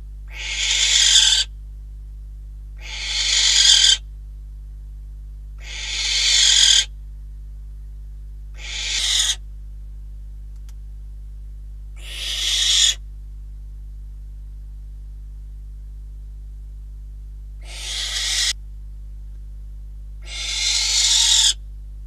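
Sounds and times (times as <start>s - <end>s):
barn owl hissing calls: 0.3s - 1.5s, 2.8s - 4.0s, 5.6s - 6.9s, 8.6s - 9.4s, 12.0s - 13.0s, 17.6s - 18.6s, 20.2s - 21.6s.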